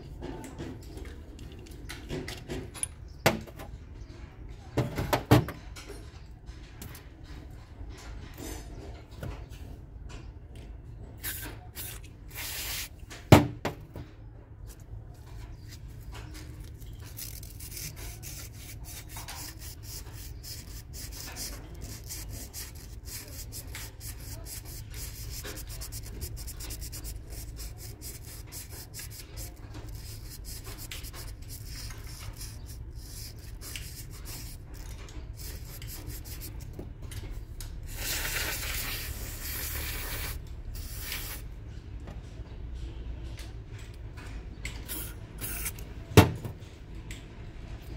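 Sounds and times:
metal parts scraping on cloth: 0:44.9 - 0:45.8.

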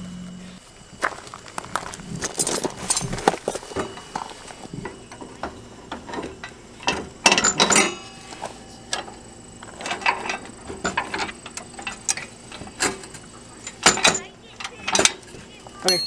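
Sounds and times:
metal tools clicking and clanking: 0:05.1 - 0:08.2, 0:08.9 - 0:15.2.

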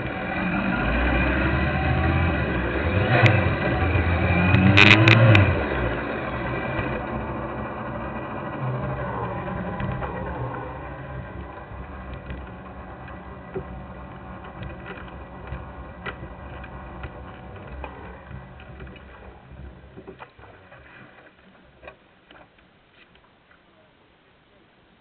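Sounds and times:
motorcycle engine idling: 0:05.3 - 0:20.7.

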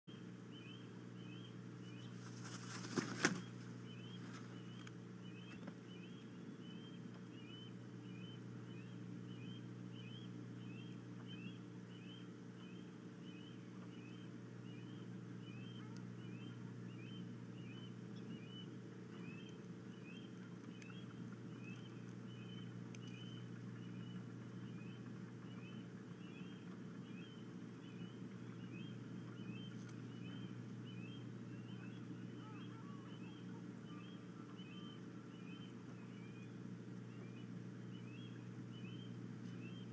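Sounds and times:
faint high chirp: 0:00.1 - 0:02.3, 0:03.2 - 0:39.9
steady low hum: 0:00.1 - 0:39.9
bird wings flapping: 0:02.1 - 0:04.6.

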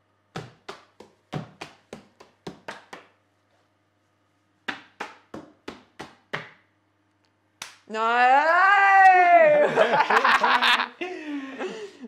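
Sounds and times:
hands tapping books: 0:00.3 - 0:03.2, 0:04.6 - 0:06.6.

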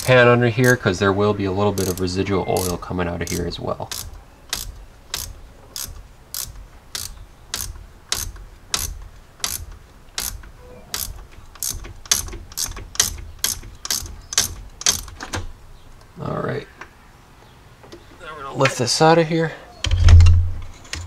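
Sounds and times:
ratchet clicking: 0:00.0 - 0:00.9, 0:01.8 - 0:15.2.

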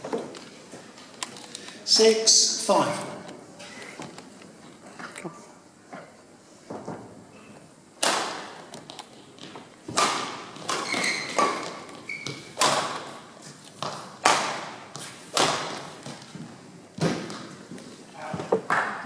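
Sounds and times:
badminton racket hitting shuttlecock: 0:09.9 - 0:16.3
shoe squeaks: 0:10.7 - 0:12.6.

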